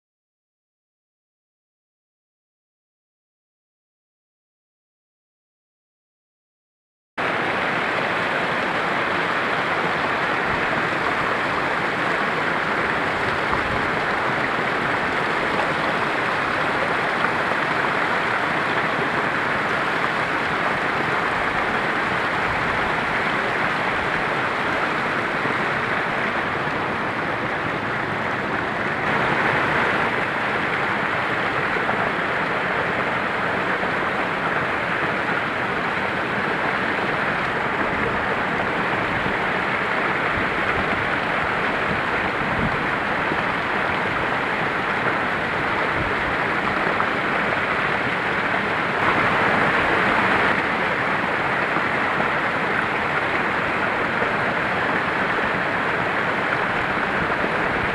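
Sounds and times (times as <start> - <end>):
water cascading into pool: 7.2 - 57.9.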